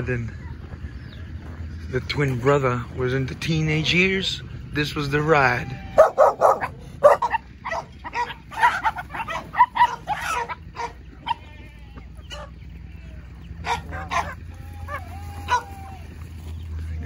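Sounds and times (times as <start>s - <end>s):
chickens squawking and clucking: 5.3s - 17.0s.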